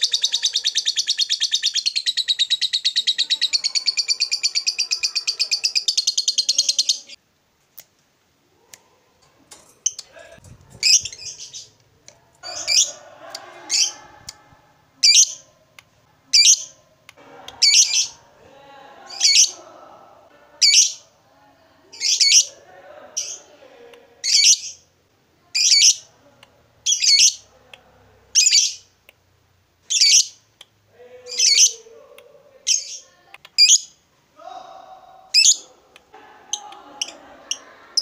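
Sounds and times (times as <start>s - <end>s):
bird chattering twitter: 0.0s - 7.2s.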